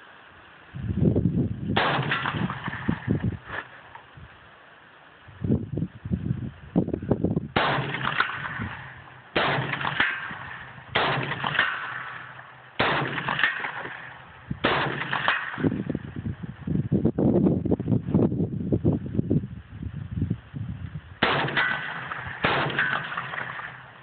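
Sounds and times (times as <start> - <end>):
rifle shots: 1.8 - 3.2, 7.6 - 16.0, 21.2 - 24.0.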